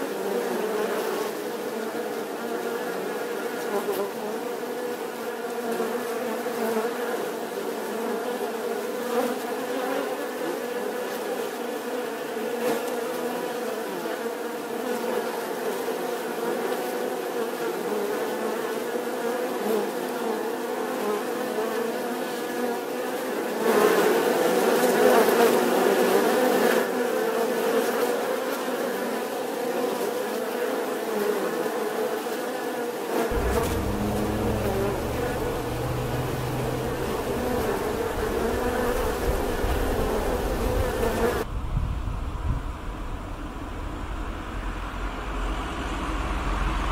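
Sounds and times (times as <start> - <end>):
low rumble: 33.3 - 39.5
bees buzzing: 33.3 - 41.4.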